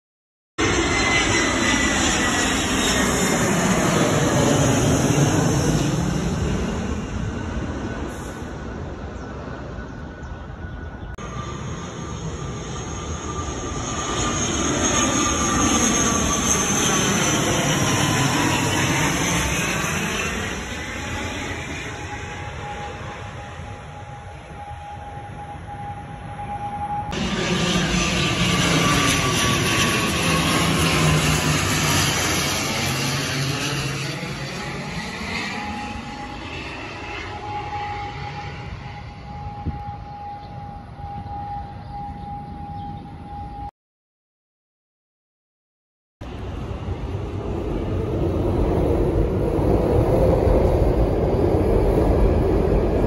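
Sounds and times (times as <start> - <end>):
airliner engine rumble and whine: 0.6 - 43.7, 46.2 - 53.0
steady high tone: 9.7 - 34.0.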